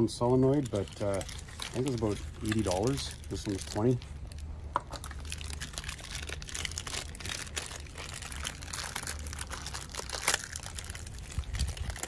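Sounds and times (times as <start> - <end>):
packaging crinkling: 0.2 - 12.0.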